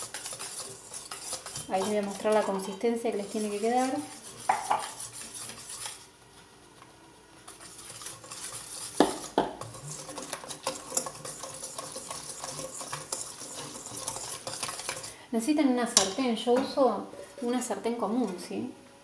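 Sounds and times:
whisk clinking in metal bowl: 0.0 - 6.0, 7.5 - 15.2.

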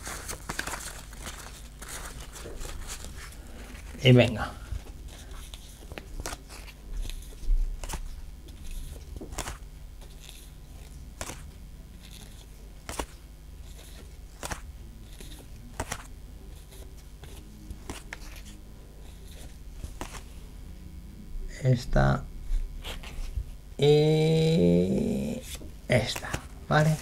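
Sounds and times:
cards snapping against stack: 5.5 - 18.6, 19.3 - 20.2, 25.4 - 26.5.

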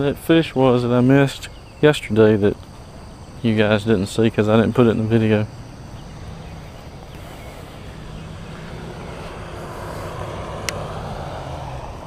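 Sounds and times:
distant engine rumbling: 0.0 - 12.0.

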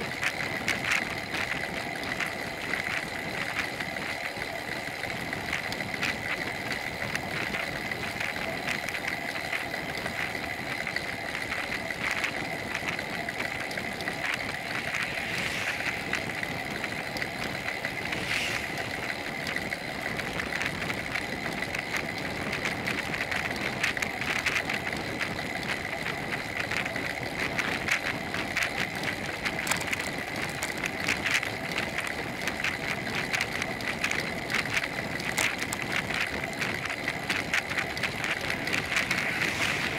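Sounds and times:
road and wind noise: 0.0 - 39.9
high whine: 6.1 - 21.8, 37.8 - 39.9
fine rattle: 27.7 - 39.9.

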